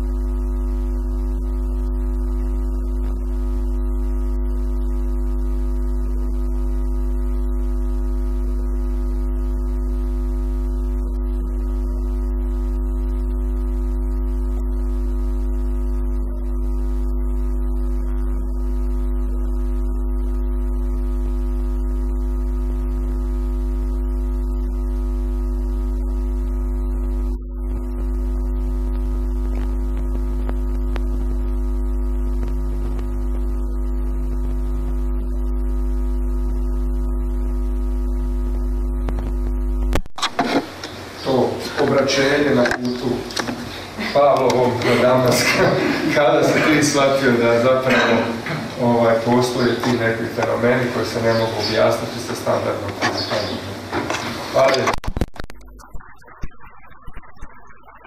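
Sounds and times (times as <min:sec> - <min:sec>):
deep droning held tones: 0:09.6 - 0:37.2, 0:55.3 - 0:58.0.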